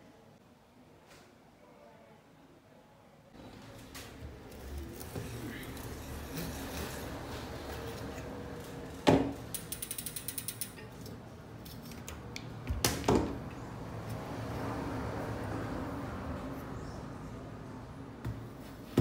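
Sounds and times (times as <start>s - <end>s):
ratchet clicking: 9.4s - 11.1s.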